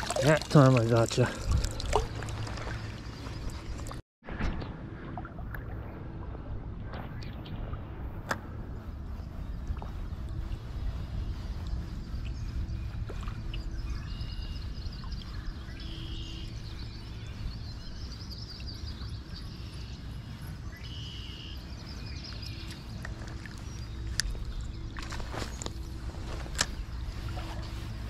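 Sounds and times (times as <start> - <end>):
creek flowing: 0.0 - 4.0.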